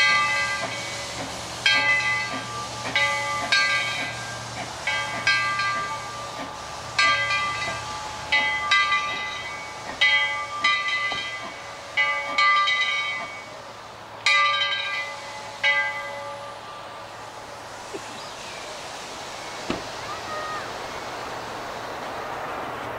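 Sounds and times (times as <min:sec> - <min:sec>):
locomotive bell ringing: 0:00.0 - 0:13.6, 0:14.2 - 0:17.6
faint hiss of steam: 0:00.0 - 0:22.9.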